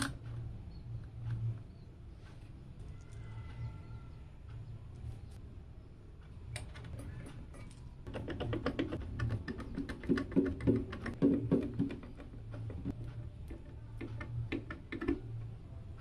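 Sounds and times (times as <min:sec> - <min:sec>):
hard plastic clicks and knocks: 0:08.1 - 0:15.4.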